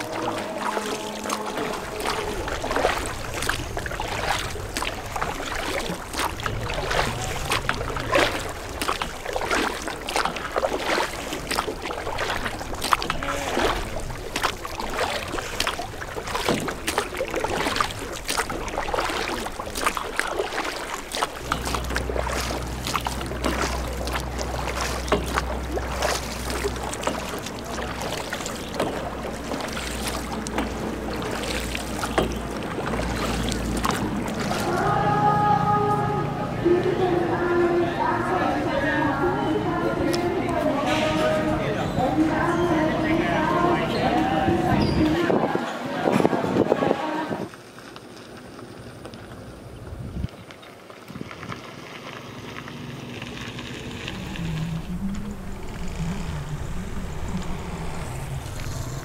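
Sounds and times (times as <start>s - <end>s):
oars splashing: 0.0s - 59.0s
water lapping at hull: 0.0s - 59.0s
low steady rumble: 21.3s - 40.8s, 51.2s - 59.0s.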